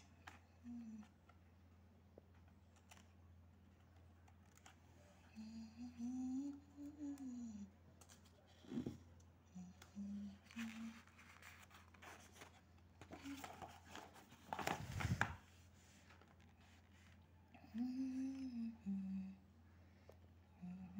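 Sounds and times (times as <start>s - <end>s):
person humming: 0.6s - 1.1s, 5.3s - 7.8s, 9.5s - 11.4s, 17.6s - 19.4s, 20.6s - 20.9s
paper page rustling: 10.4s - 17.2s.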